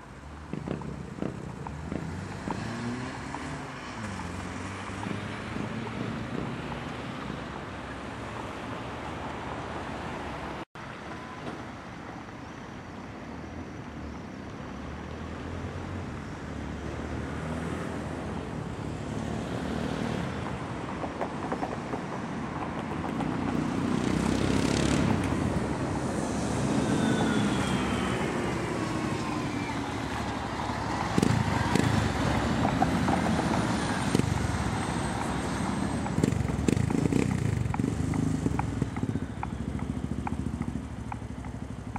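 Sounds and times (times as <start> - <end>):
road traffic going by: 0.0 - 41.9
loud motorcycle passing: 0.5 - 7.5, 23.3 - 41.9
vehicle passing: 0.5 - 10.6, 23.0 - 41.9.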